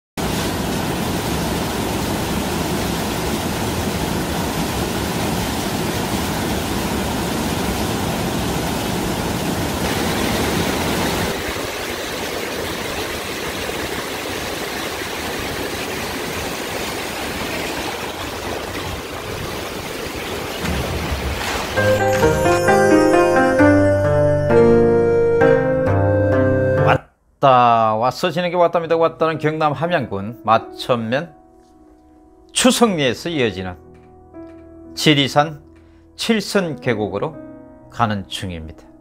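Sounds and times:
stream running over stones: 0:00.2 - 0:22.7
waterfall splashing into pool: 0:00.2 - 0:23.4.

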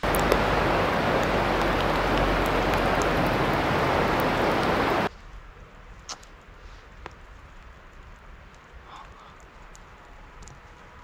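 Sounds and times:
steady rushing noise: 0:00.0 - 0:05.9
faint ticks: 0:06.0 - 0:11.0.

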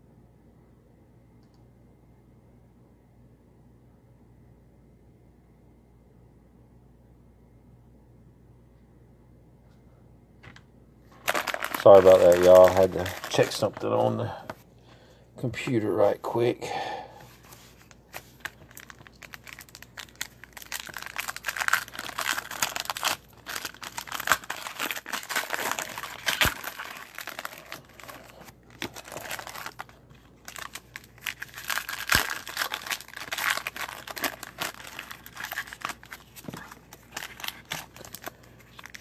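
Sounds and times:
foil wrappers tearing and crinkling: 0:11.2 - 0:14.5, 0:17.8 - 0:39.0.

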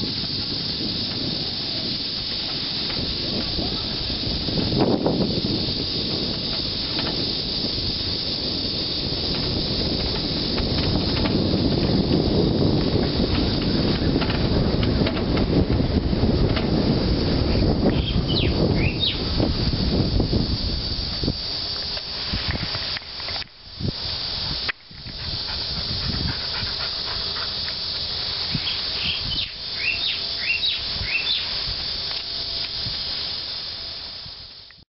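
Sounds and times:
cicadas droning: 0:00.0 - 0:34.8
wind rushing over microphone: 0:00.0 - 0:34.8
bird chirping: 0:17.9 - 0:19.2, 0:28.6 - 0:31.6.

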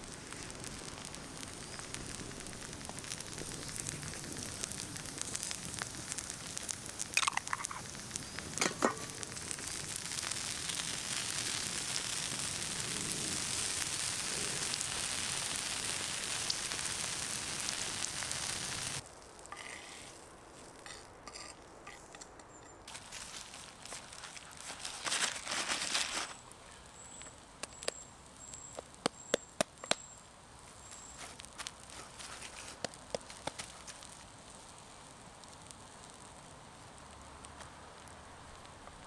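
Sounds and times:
sharp cracks: 0:00.0 - 0:15.0, 0:27.2 - 0:30.2
food sizzling over campfire: 0:00.0 - 0:39.0.

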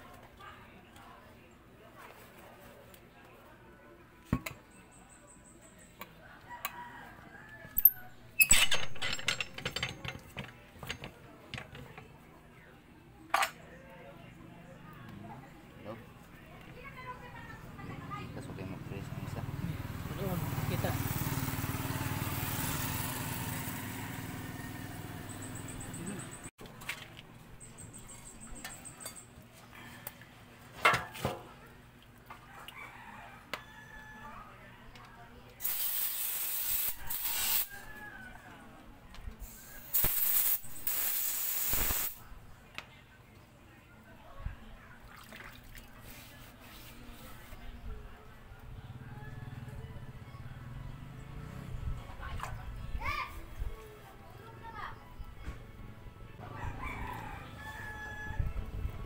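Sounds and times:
engine running: 0:18.2 - 0:26.5.

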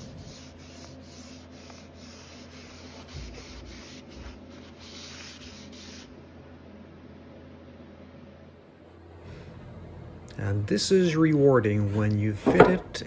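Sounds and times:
cloth rag rubbing on wood: 0:00.0 - 0:06.1.

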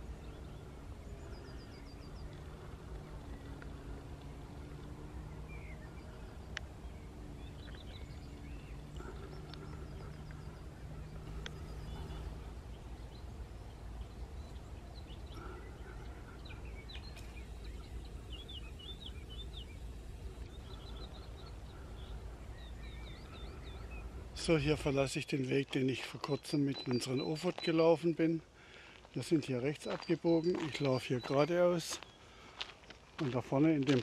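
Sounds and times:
faint low drone: 0:00.0 - 0:25.5
steady low rumble: 0:00.0 - 0:25.9
songbirds singing and chirping: 0:00.0 - 0:34.0.

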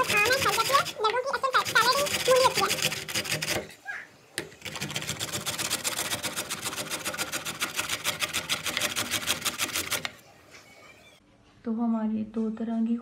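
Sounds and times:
radish grated on metal grater: 0:00.0 - 0:03.7, 0:04.6 - 0:10.2.

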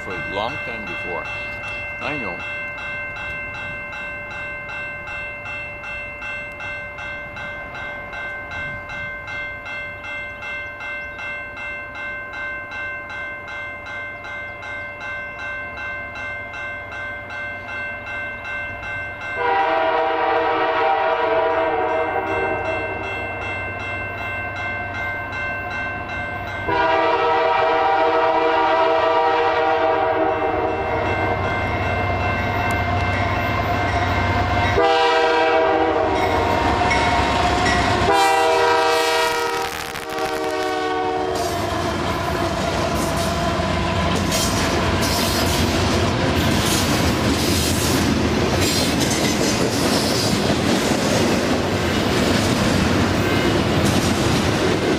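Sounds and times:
locomotive horn blasts: 0:19.4 - 0:22.7, 0:26.7 - 0:31.1, 0:34.8 - 0:36.6, 0:37.9 - 0:41.6
rumble of train cars rolling: 0:26.0 - 0:54.9
wheels clickety-clack on rails: 0:41.3 - 0:54.9.

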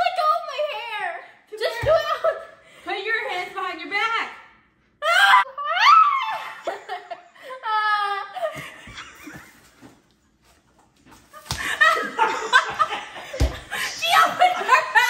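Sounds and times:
girls laughing: 0:05.0 - 0:09.8, 0:11.3 - 0:15.0.

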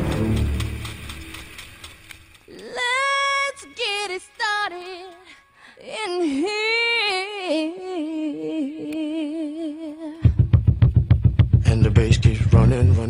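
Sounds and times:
high voice singing unaccompanied: 0:02.5 - 0:10.3.

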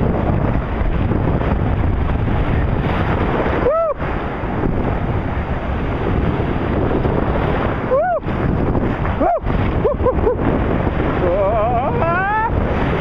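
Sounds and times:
surf breaking: 0:00.0 - 0:13.0
wind buffeting microphone: 0:00.0 - 0:13.0
person crying out: 0:03.6 - 0:04.0, 0:07.9 - 0:08.3, 0:09.2 - 0:10.1, 0:11.8 - 0:12.6.

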